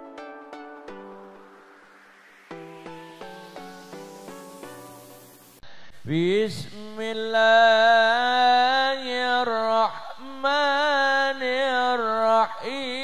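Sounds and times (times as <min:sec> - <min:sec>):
man singing chant into microphone: 0:06.0 - 0:13.0.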